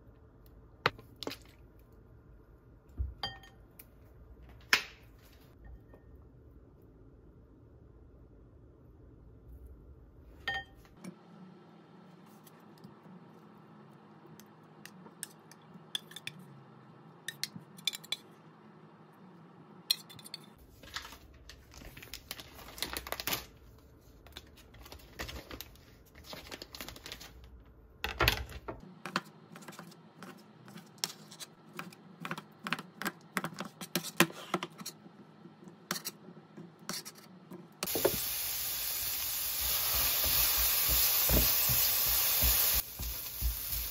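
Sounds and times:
frying sizzle: 0:37.8 - 0:43.9.

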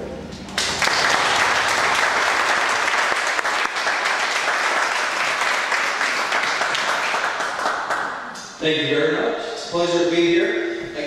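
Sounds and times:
audience applauding: 0:00.5 - 0:08.4.

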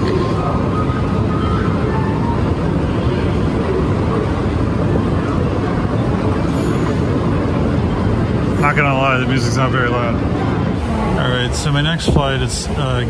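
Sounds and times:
faint music: 0:00.0 - 0:13.0
foot traffic: 0:00.0 - 0:13.0
rumble of moving walkways: 0:00.0 - 0:13.0.

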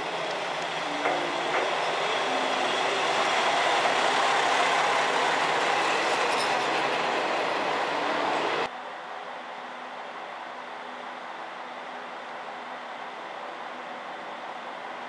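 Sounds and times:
wheels rumbling on rails: 0:00.0 - 0:08.7.

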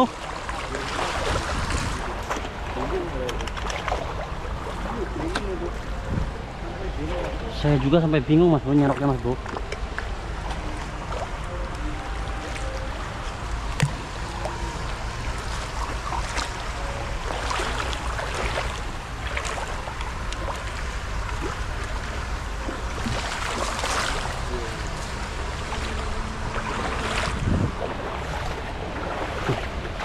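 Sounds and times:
net splashing through water: 0:00.0 - 0:05.7, 0:13.8 - 0:30.0
shallow stream running: 0:00.0 - 0:30.0.

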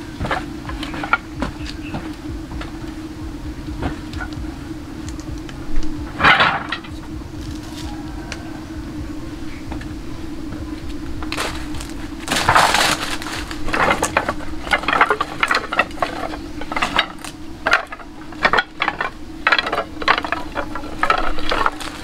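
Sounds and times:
steady low hum: 0:00.0 - 0:22.0
crunching and snapping building materials: 0:00.2 - 0:02.7, 0:11.2 - 0:22.0.

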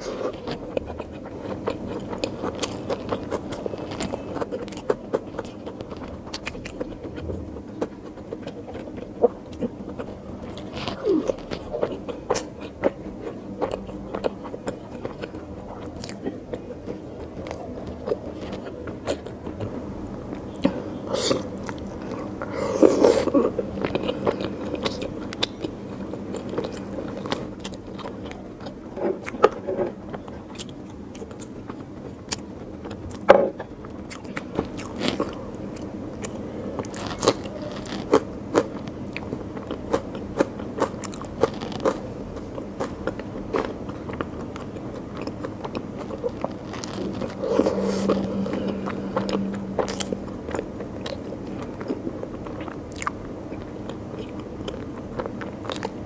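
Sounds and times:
wet chewing and mouth clicks: 0:23.2 - 0:56.0.

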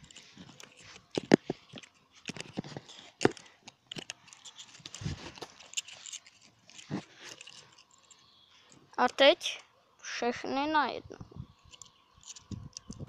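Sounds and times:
phone handling rustling: 0:00.0 - 0:09.3.

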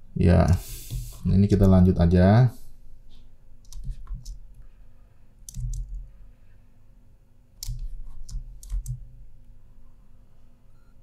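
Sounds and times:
faint steady hum: 0:00.0 - 0:11.0
sharp clicks and taps at computer desk: 0:03.6 - 0:04.4, 0:07.6 - 0:09.0.

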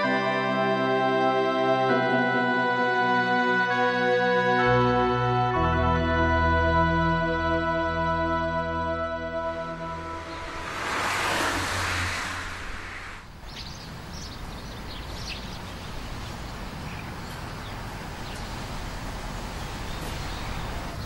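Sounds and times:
car passing: 0:08.7 - 0:21.0
birds chirping: 0:09.7 - 0:21.0.

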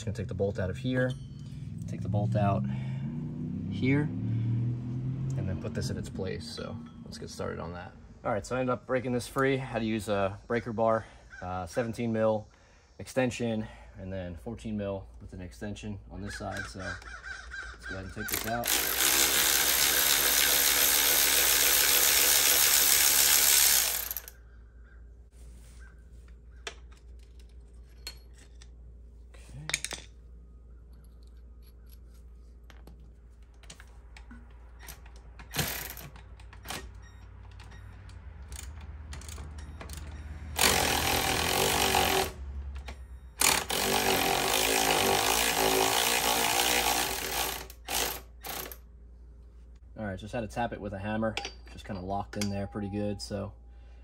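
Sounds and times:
cordless ratchet motor whir: 0:18.2 - 0:24.4, 0:38.5 - 0:42.4, 0:43.4 - 0:48.8.

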